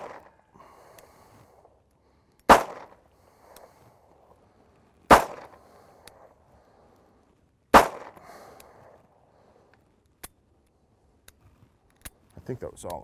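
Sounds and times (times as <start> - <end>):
revolver gunshots echoing: 0.0 - 0.3, 2.5 - 3.0, 5.1 - 5.6, 7.7 - 8.2
faint clicks: 0.8 - 1.1, 8.5 - 8.8.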